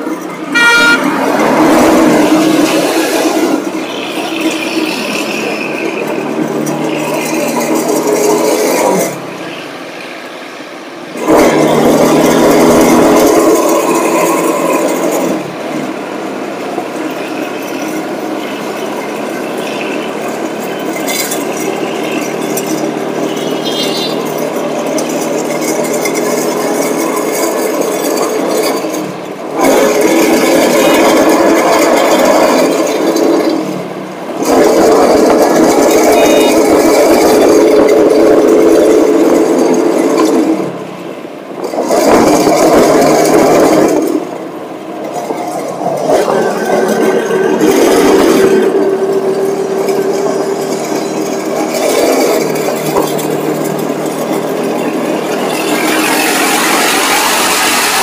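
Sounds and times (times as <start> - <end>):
auto-rickshaw engine rattling: 0.0 - 58.0.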